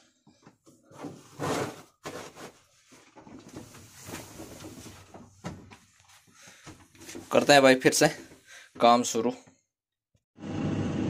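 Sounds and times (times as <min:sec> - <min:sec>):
rustling: 0:01.0 - 0:07.5.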